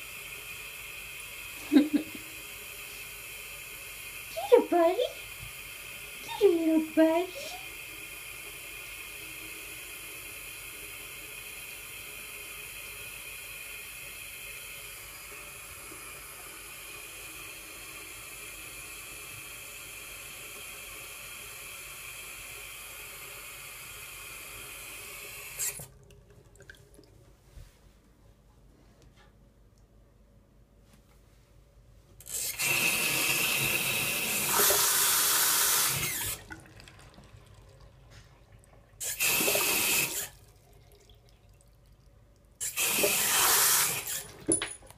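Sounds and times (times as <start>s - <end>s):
faucet running into sink: 4.0s - 27.1s, 32.3s - 42.0s, 42.6s - 44.9s.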